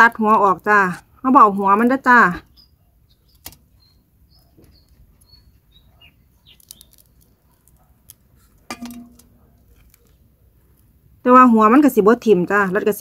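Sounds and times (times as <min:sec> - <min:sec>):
bird chirps: 0:02.4 - 0:07.5.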